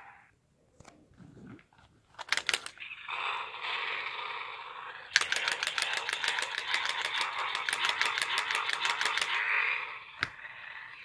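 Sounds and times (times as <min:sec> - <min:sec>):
toy car clicking rattle: 0:02.2 - 0:02.8, 0:05.1 - 0:10.3.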